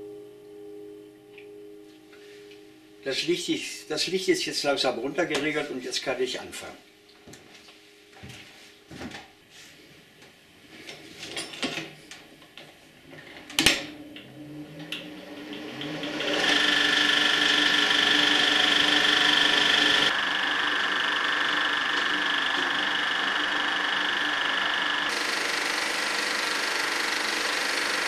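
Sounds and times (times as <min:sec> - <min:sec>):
projector mechanical whir: 0:13.1 - 0:28.0.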